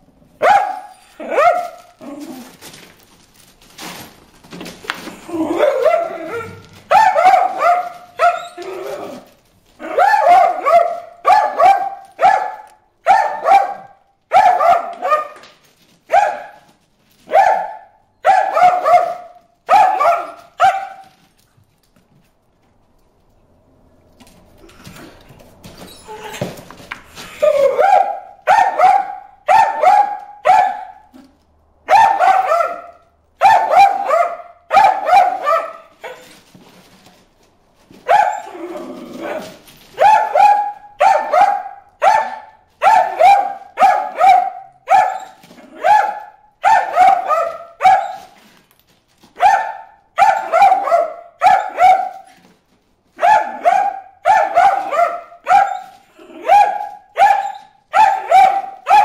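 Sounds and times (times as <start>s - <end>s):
dog barking: 0.4s - 1.9s, 5.6s - 9.2s, 9.8s - 15.4s, 16.1s - 16.7s, 17.3s - 21.2s, 27.4s - 31.3s, 31.9s - 36.3s, 38.0s - 38.6s, 39.2s - 48.4s, 49.4s - 52.4s, 53.2s - 59.0s.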